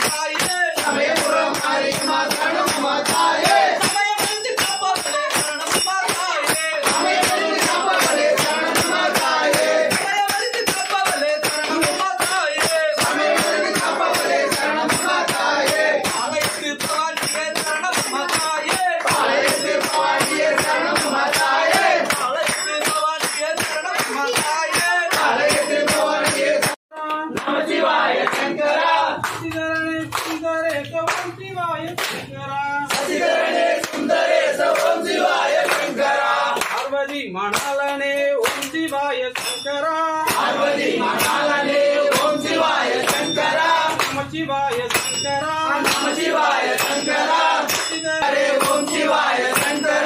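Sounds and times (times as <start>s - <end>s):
fast percussion beat: 0.0s - 26.8s, 38.4s - 50.0s
devotional singing: 0.0s - 31.1s, 40.1s - 50.0s.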